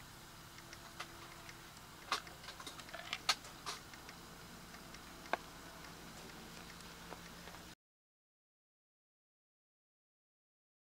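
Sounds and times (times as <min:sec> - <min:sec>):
firewood crackling in a stove: 0:00.0 - 0:07.8.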